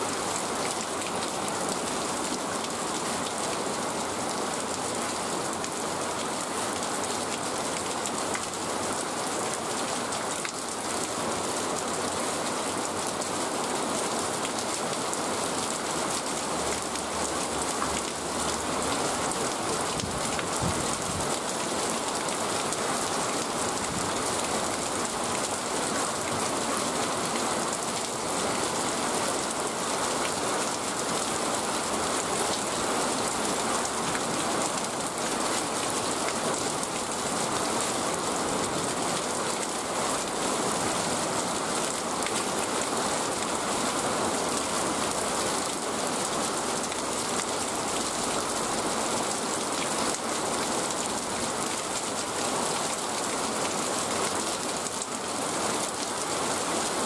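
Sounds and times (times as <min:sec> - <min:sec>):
rain falling on wet ground: 0:00.0 - 0:57.0.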